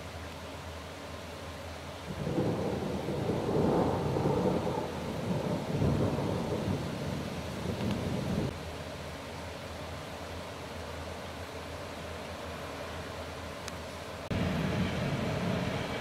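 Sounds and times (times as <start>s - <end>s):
rolling thunder rumbling: 2.1s - 8.6s, 14.3s - 16.0s.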